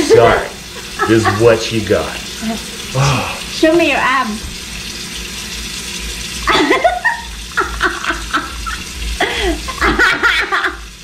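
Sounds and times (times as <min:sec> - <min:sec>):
person laughing: 0:00.8 - 0:01.6, 0:06.5 - 0:10.9.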